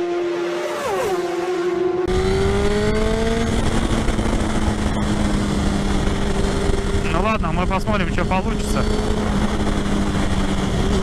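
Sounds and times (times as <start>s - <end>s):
motorcycle engine running: 1.9s - 11.0s
wind rush on microphone: 2.1s - 11.0s.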